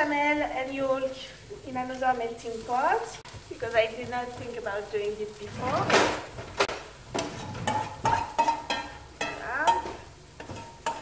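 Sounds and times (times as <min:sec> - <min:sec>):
spoon scraping pan: 0:07.1 - 0:11.0.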